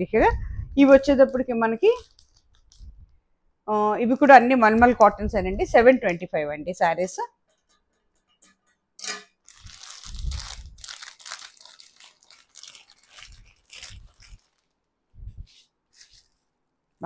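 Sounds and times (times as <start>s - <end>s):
plastic packets crinkling: 0.8s - 3.2s, 9.4s - 16.6s.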